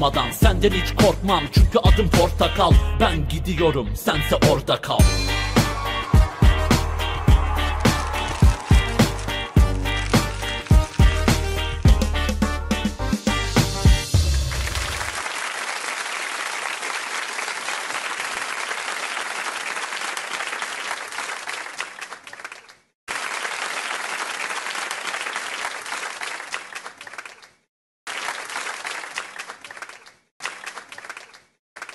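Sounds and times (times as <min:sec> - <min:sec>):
audience applauding: 0:05.2 - 0:12.2, 0:14.3 - 0:31.9.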